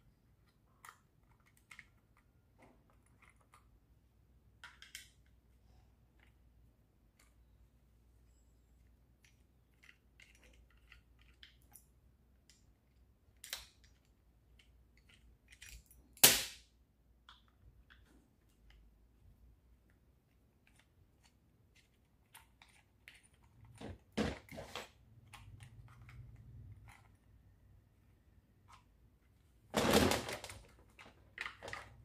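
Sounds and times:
screwdriver clicks and scrapes: 9.2 - 12.7.

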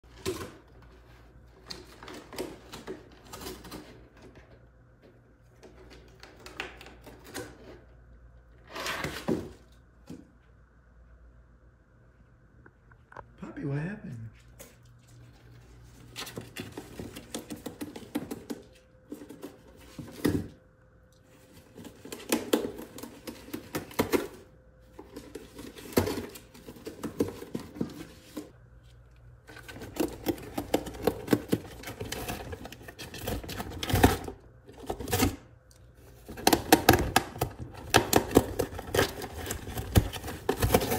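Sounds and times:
animal gnawing cardboard box: 14.9 - 20.5, 21.3 - 40.9.

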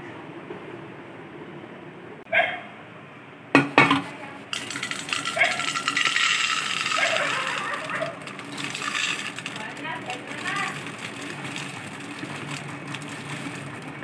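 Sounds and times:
lentils pouring into metal pot: 4.5 - 14.0.

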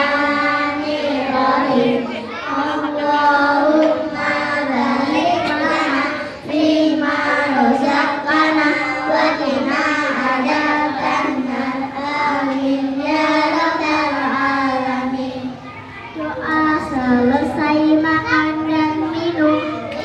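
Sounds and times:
children chanting prayers in unison: 0.0 - 20.0.

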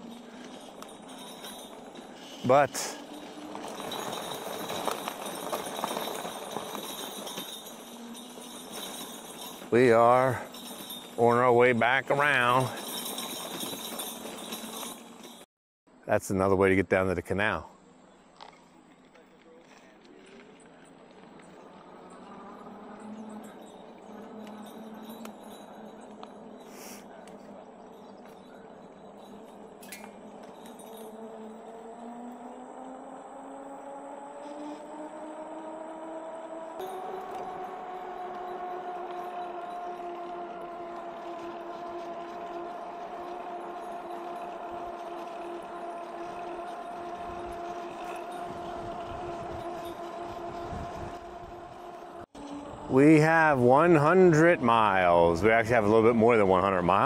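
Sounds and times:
tyre noise on rough trail: 0.0 - 15.4, 17.4 - 57.0
light clinks and rattles: 0.0 - 15.5, 18.3 - 35.8, 36.8 - 57.0
electric motor humming: 34.2 - 52.8.

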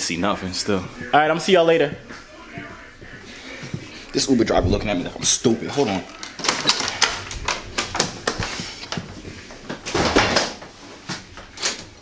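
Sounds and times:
clothing and backpack rustling: 5.8 - 12.0.

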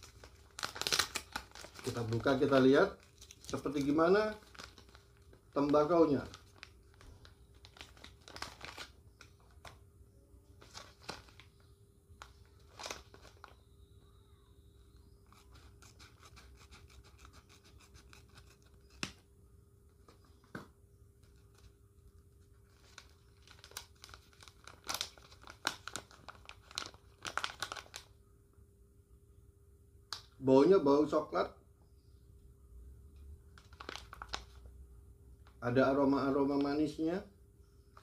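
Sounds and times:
packaging crinkling and rustling: 0.0 - 9.8, 10.5 - 13.7, 21.2 - 28.1, 33.5 - 34.7.

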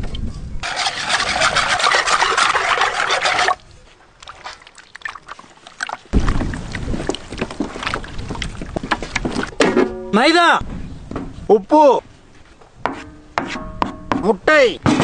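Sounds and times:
wet batter rubbing in steel vessel: 0.6 - 3.6.

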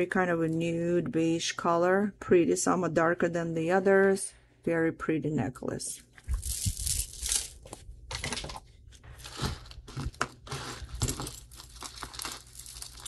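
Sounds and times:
packaging crinkling and rustling: 6.2 - 13.0.

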